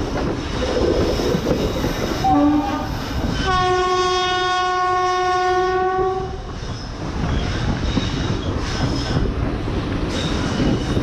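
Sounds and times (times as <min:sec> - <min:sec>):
train wheels rumbling on track: 0:00.0 - 0:11.0
locomotive horn blast: 0:02.2 - 0:06.4.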